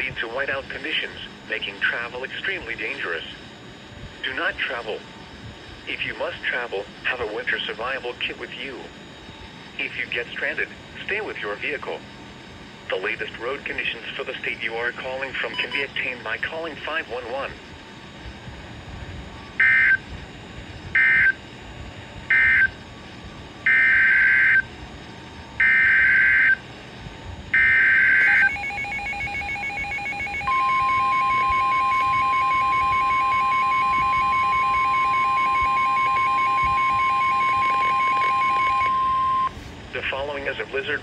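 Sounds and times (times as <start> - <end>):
steady warning alarm tone: 0.0 - 39.6
screeching digital data bursts: 27.5 - 39.5
rapid beeping: 27.6 - 39.5.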